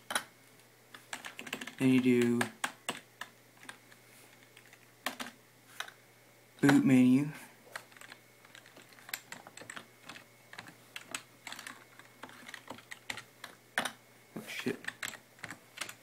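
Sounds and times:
keyboard typing: 1.0 - 6.0, 7.7 - 14.0, 14.6 - 16.0.

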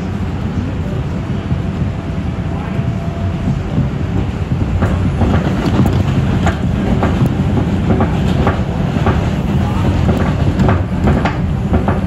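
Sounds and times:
subway train wheels rumbling: 0.0 - 12.0
wheels clicking over rail joints: 3.4 - 12.0.

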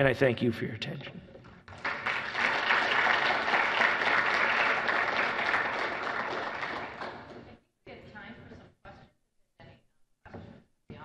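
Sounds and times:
audience applauding: 1.7 - 7.3.

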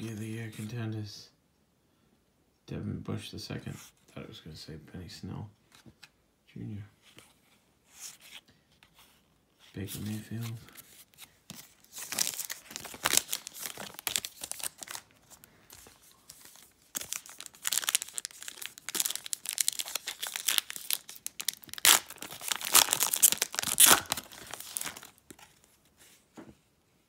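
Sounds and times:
foil wrapper tearing and crinkling: 11.8 - 25.3.

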